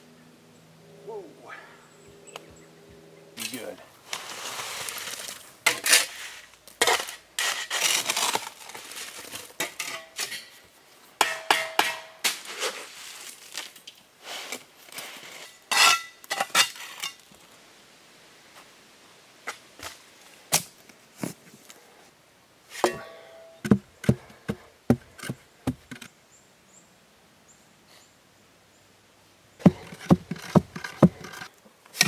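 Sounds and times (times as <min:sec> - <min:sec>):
shovel scraping on concrete blocks: 0:03.4 - 0:10.6, 0:11.2 - 0:13.5, 0:14.2 - 0:17.3, 0:29.6 - 0:32.0.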